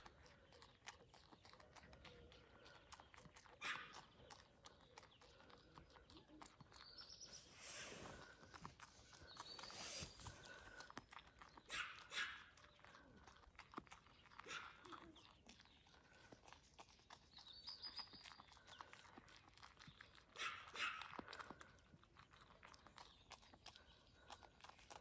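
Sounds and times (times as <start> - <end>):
goat chewing grass: 0.0 - 25.0
grass rustling: 7.4 - 10.4.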